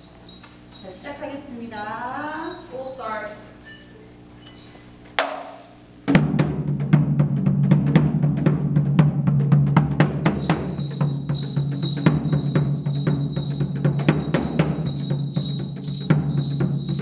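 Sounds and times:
high metallic ringing: 0.0s - 5.0s, 10.1s - 17.0s
drums in a fast rhythm: 5.2s - 17.0s.

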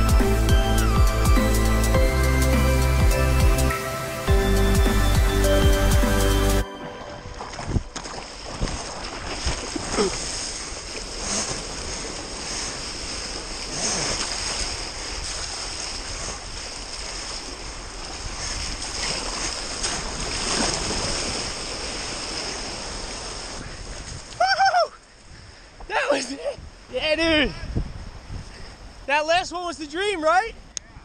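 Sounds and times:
water rushing and splashing: 0.0s - 24.4s
wind on microphone: 7.2s - 24.6s, 26.4s - 29.1s.

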